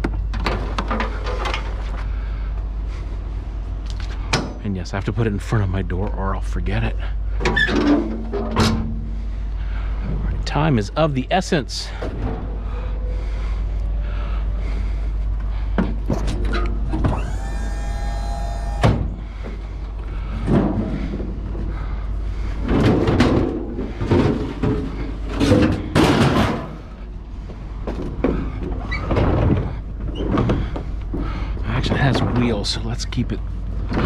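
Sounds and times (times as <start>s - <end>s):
steady low rumble: 0.0s - 34.0s
scrap metal clanks and thuds: 7.4s - 9.2s, 20.3s - 21.7s, 22.5s - 27.0s.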